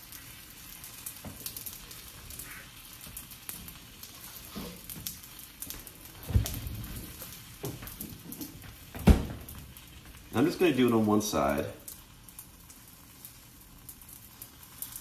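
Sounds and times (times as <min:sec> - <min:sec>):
food frying in oil: 0:00.0 - 0:15.0
dull thump: 0:08.9 - 0:09.5.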